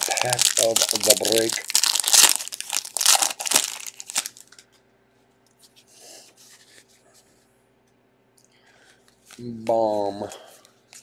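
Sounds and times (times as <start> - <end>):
foil wrapper crinkling and tearing: 0.0 - 4.6.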